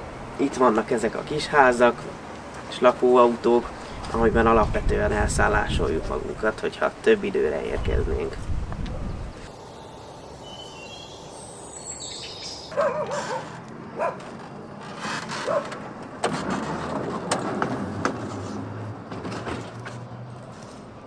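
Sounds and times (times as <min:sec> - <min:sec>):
high chirps: 0:09.5 - 0:12.7
metal clanks and knocks: 0:19.1 - 0:20.6.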